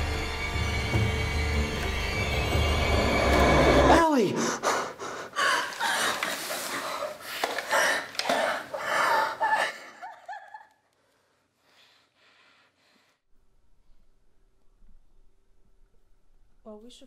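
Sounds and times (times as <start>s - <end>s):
man gasping and breathing hard: 4.3s - 6.2s.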